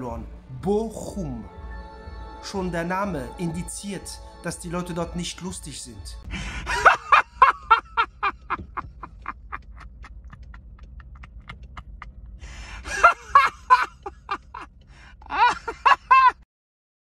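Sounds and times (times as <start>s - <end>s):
man laughing hard: 6.4s - 16.4s.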